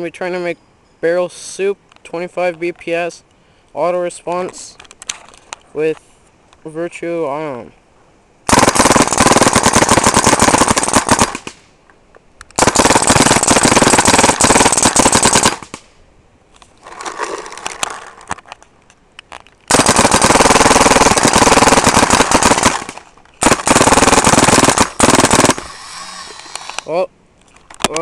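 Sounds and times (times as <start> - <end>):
paintball marker firing full-auto: 8.5 - 11.6, 12.6 - 15.8, 19.7 - 26.9.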